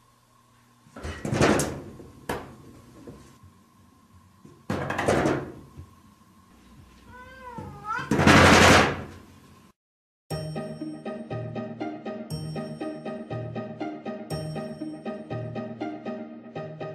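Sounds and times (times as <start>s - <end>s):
cat meowing: 7.1s - 8.2s
sliding door rattling and banging: 8.1s - 9.1s.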